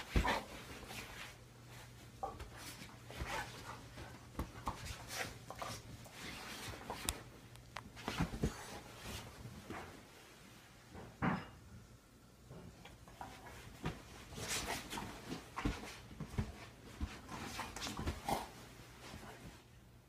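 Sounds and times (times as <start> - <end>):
scuffling and sheet rustling: 0.0 - 10.4.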